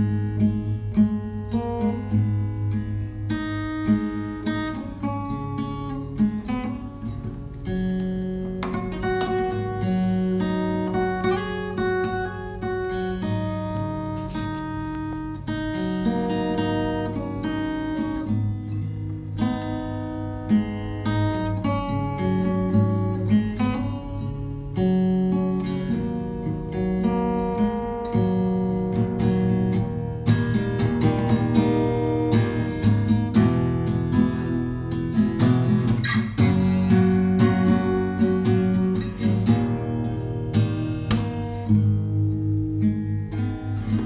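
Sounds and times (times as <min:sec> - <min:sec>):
acoustic guitar: 0:00.0 - 0:44.0.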